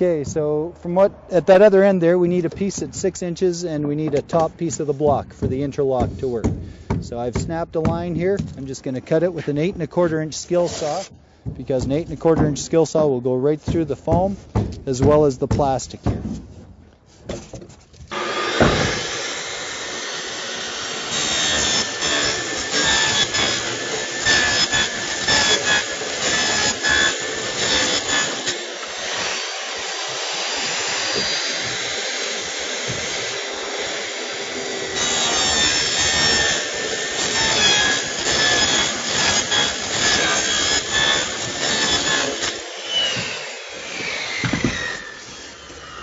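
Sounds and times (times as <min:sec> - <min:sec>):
circular saw cutting foam block: 0:10.0 - 0:11.1, 0:18.1 - 0:46.0.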